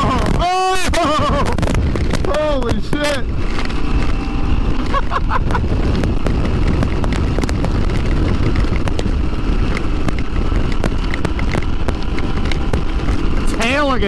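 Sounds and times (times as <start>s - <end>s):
motorcycle engine rumble: 0.0s - 14.0s
wind roar: 0.0s - 14.0s
sharp ticks: 5.9s - 14.0s.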